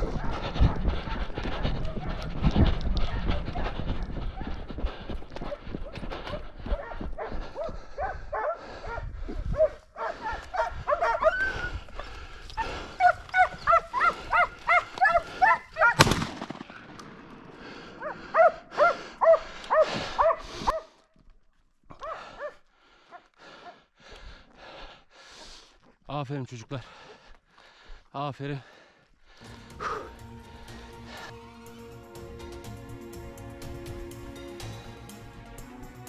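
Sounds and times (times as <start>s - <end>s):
dogs barking and yelping: 0.0s - 16.0s, 18.0s - 20.9s, 21.9s - 23.8s.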